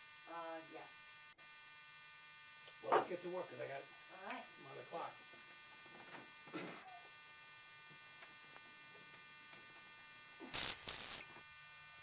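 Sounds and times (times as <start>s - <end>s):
burst of static: 10.6s - 11.2s
faint electrical hum: 10.6s - 11.9s.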